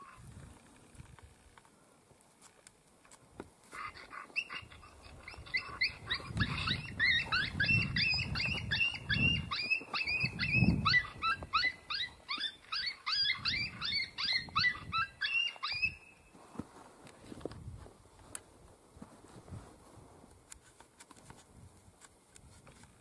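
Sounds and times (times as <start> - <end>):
electronic canine yips: 3.8 - 16.1.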